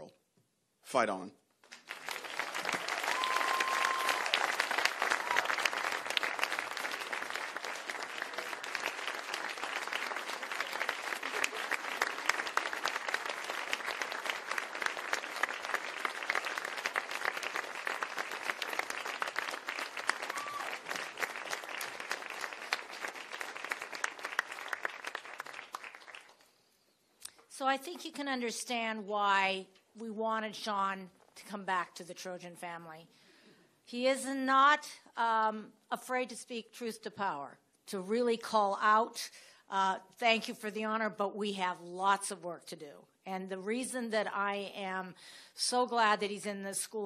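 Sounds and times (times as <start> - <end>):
audience applause: 1.7 - 26.4.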